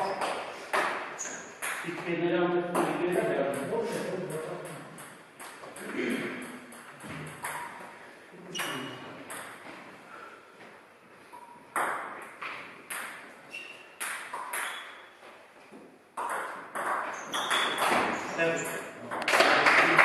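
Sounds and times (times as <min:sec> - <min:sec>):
ball bouncing on table: 0:05.0 - 0:07.8, 0:11.4 - 0:13.3, 0:14.0 - 0:14.9, 0:16.2 - 0:19.5.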